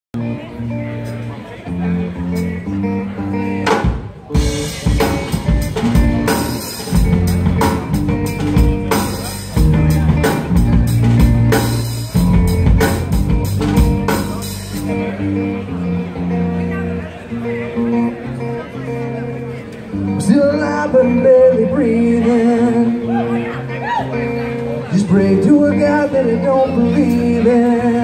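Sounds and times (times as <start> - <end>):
live rock band playing: 0.2 - 28.0
sustained guitar chords: 0.2 - 28.0
drum kit: 3.4 - 15.2.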